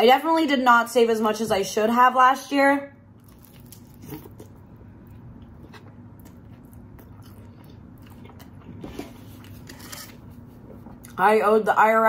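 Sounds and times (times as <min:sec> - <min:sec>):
chewing pizza: 0:03.2 - 0:11.2.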